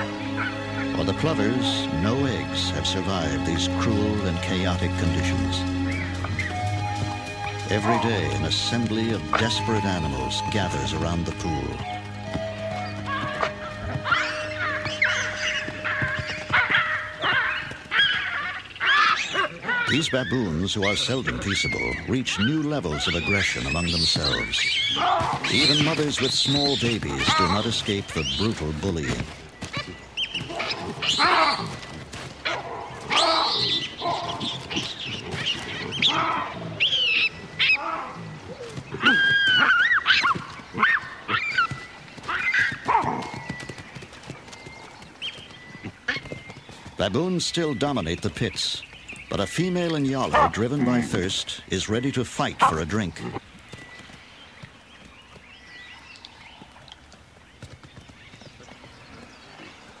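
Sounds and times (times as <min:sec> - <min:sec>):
high chirping calls: 0:00.0 - 0:32.0, 0:32.8 - 1:00.0
hoof and foot taps on hard ground: 0:04.0 - 0:51.3, 0:52.0 - 1:00.0
baboons screaming: 0:07.4 - 0:11.0, 0:12.9 - 0:31.8, 0:32.4 - 0:43.4, 0:49.3 - 0:52.0, 0:52.6 - 0:53.4.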